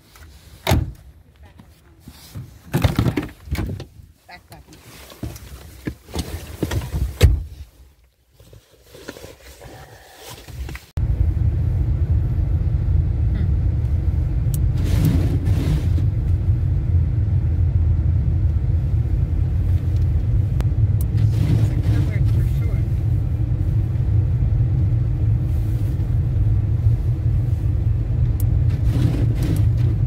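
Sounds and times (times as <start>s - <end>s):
handling knocks and rustles: 0.0s - 10.9s
car engine humming: 9.8s - 30.0s.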